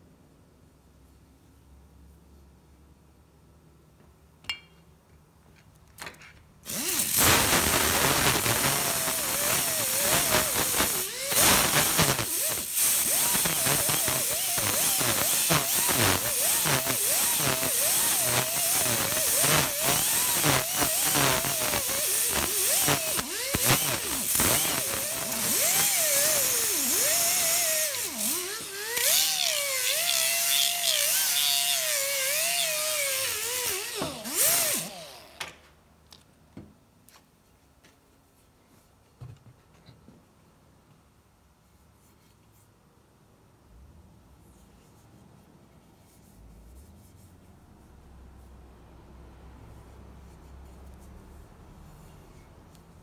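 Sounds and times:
pneumatic die grinder grinding metal: 6.6s - 35.5s.

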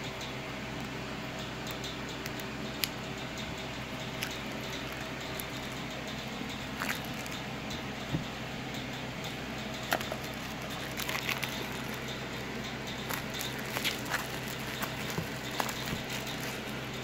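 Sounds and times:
background hum and hiss: 0.0s - 17.0s
cardboard rustling: 9.9s - 12.1s, 13.0s - 17.0s.

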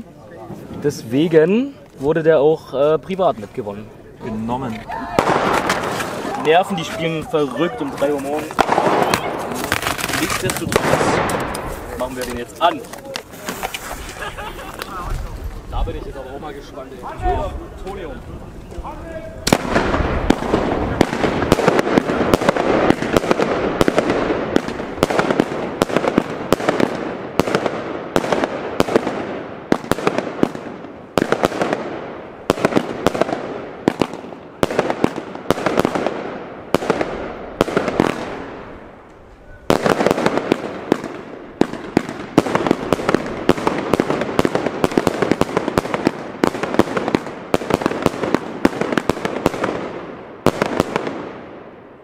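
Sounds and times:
firework battery firing: 4.5s - 15.9s, 19.4s - 51.6s.

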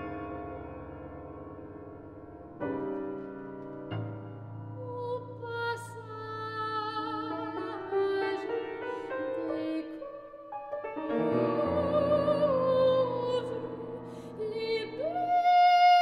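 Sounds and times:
grand piano accompaniment: 0.0s - 16.0s
woman singing with vibrato: 4.8s - 10.5s, 11.1s - 16.0s.

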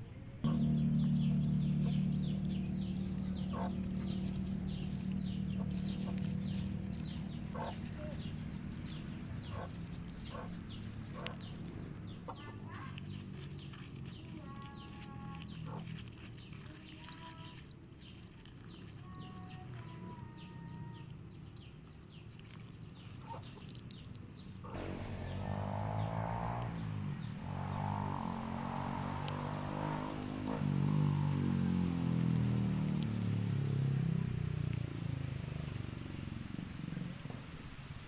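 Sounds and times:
steady low hum: 0.0s - 12.4s, 24.7s - 33.7s.

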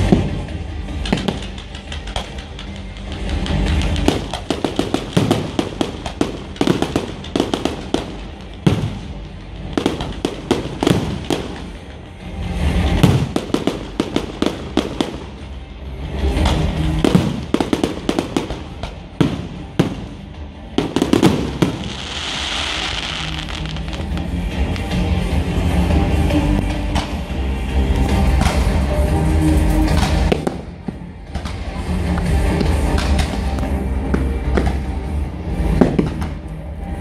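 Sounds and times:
fireworks bangs and crackles: 0.0s - 37.0s
crackling hiss: 20.9s - 25.0s.

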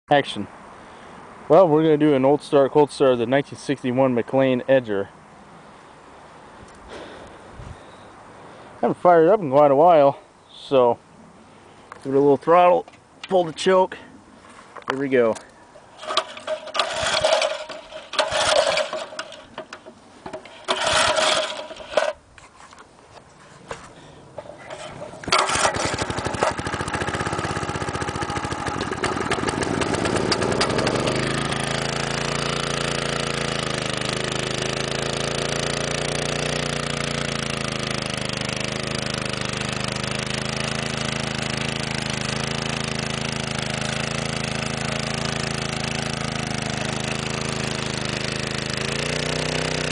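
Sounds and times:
recoil starter pulls: 16.0s - 22.2s, 24.4s - 49.9s
small engine running: 16.0s - 22.2s, 24.5s - 49.9s.

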